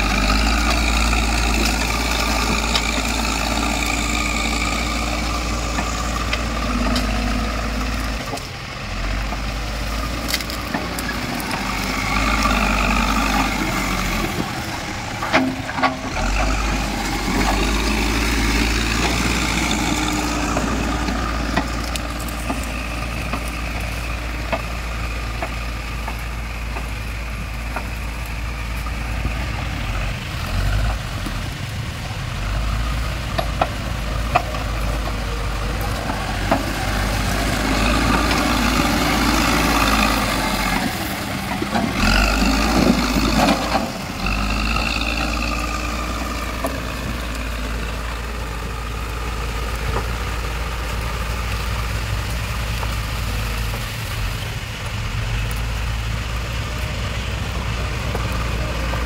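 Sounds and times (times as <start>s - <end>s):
diesel engine under load: 0.0s - 59.0s.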